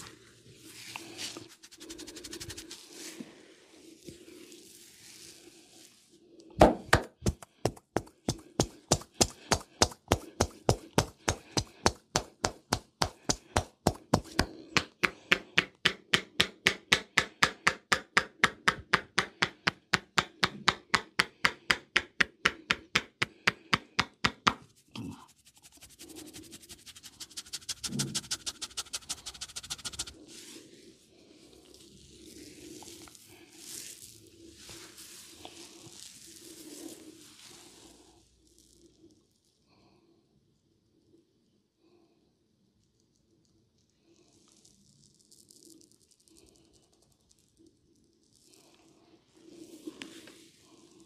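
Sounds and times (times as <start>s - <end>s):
hands chopping on head: 6.6s - 24.6s, 25.7s - 30.1s.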